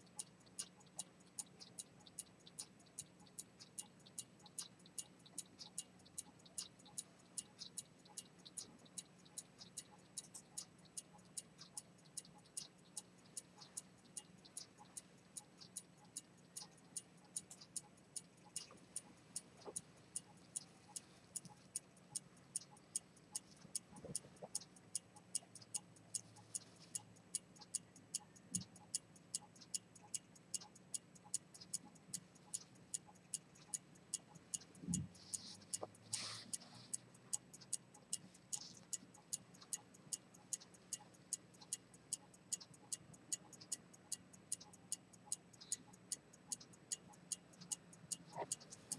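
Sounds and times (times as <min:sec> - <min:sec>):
pocket watch ticking: 0:00.0 - 0:48.9.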